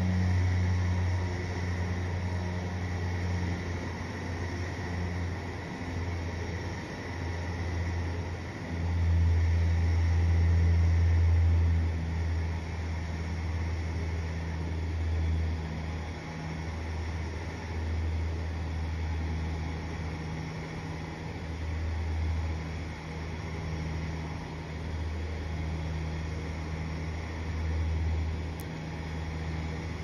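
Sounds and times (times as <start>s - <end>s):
roller coaster lift hum: 0.0s - 30.0s.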